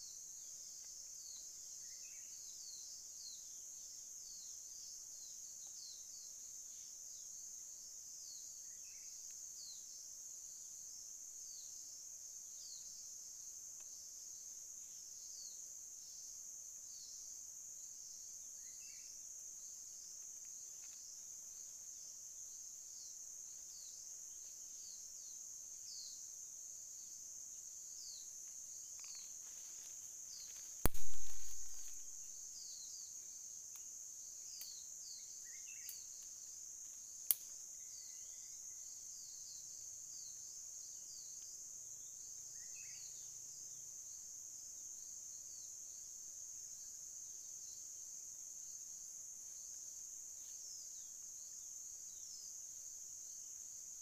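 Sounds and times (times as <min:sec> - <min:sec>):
forest insects chorus: 0:00.0 - 0:54.0
falling chirps: 0:30.8 - 0:32.3.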